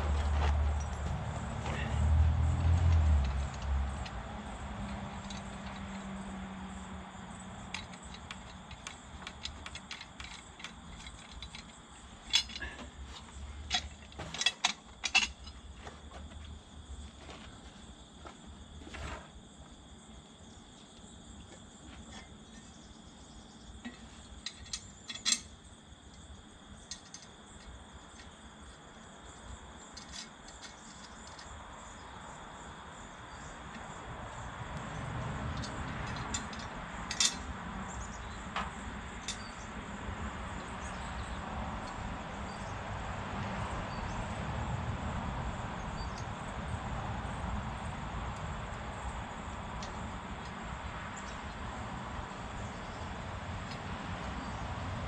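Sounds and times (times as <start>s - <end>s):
metallic clinks of steel parts: 4.8s - 6.1s, 7.6s - 15.7s, 23.8s - 25.6s, 26.8s - 28.4s, 29.9s - 31.5s, 35.6s - 37.5s, 39.2s - 39.6s.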